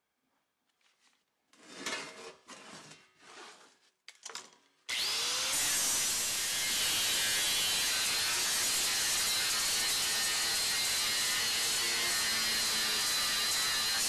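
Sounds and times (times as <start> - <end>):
sheet metal scraping on wood: 1.5 - 3.9
angle grinder grinding metal: 4.9 - 14.0.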